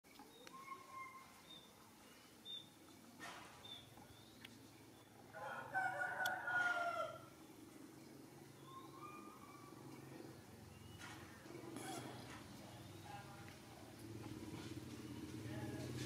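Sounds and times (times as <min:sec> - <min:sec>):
rooster crowing: 0:05.3 - 0:07.3.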